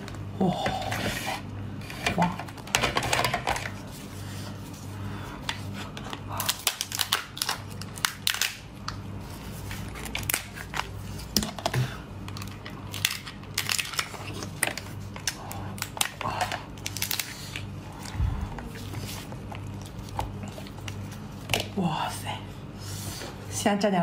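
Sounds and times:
lobster shell cracking: 6.4 - 9.0, 10.1 - 17.3.

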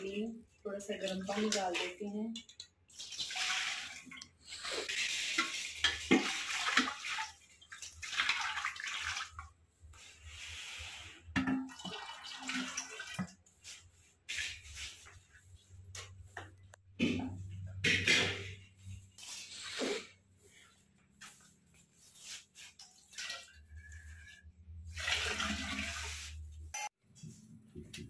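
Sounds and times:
liquid pouring and splashing: 0.9 - 9.5, 11.4 - 13.3, 22.2 - 26.5.

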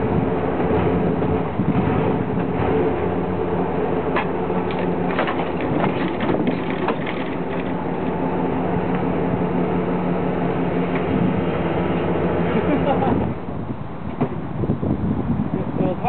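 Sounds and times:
truck engine running: 0.0 - 15.5
wheels cracking over shovels: 4.1 - 8.2.

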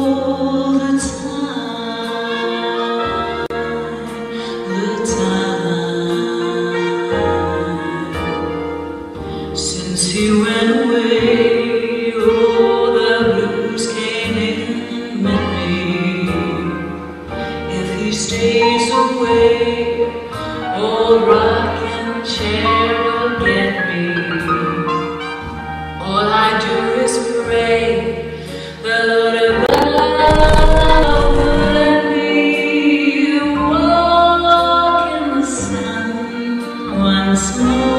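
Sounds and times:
woman singing slow song: 0.0 - 3.0, 3.6 - 8.5, 9.6 - 17.0, 17.7 - 24.0.

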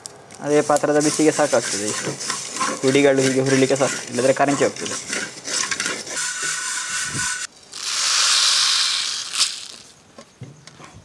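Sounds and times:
seeds crackling: 0.0 - 10.0
seeds pouring hiss: 0.4 - 4.8, 6.1 - 10.0
wooden spatula scraping clay pan: 0.6 - 7.5.

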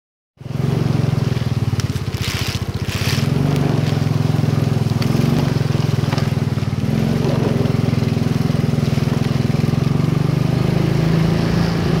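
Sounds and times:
motorcycle engine puttering: 0.4 - 11.0.

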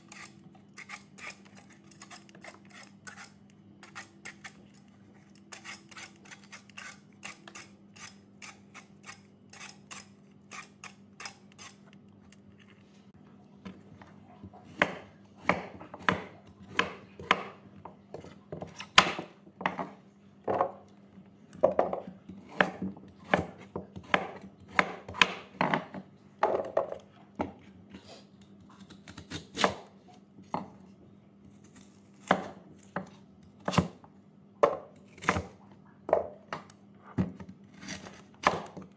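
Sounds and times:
lotus root being peeled by hand: 37.4 - 38.9.

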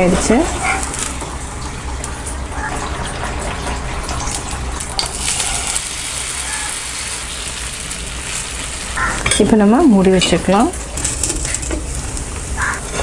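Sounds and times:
hot oil sizzling in pan: 4.2 - 12.9.

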